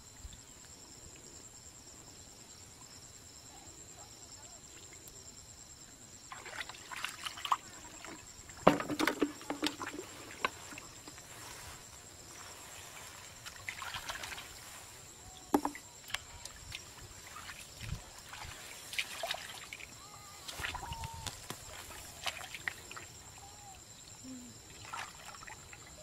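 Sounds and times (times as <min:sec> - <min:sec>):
hands splashing in muddy water: 0:13.4 - 0:14.8, 0:15.6 - 0:19.8, 0:20.4 - 0:23.1.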